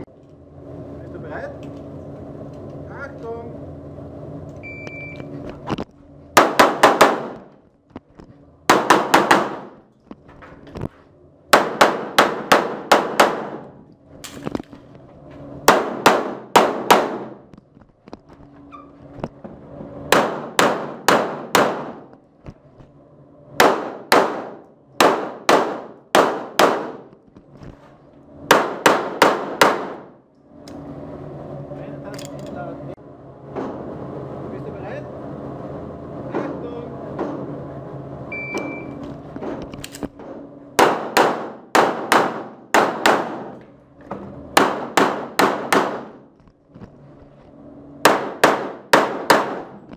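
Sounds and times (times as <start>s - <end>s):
pistol shots echoing indoors: 6.4s - 7.5s, 8.7s - 9.8s, 11.5s - 13.7s, 15.7s - 17.4s, 20.1s - 22.1s, 23.6s - 27.1s, 28.5s - 30.2s, 40.8s - 43.6s, 44.6s - 46.3s, 48.0s - 49.8s.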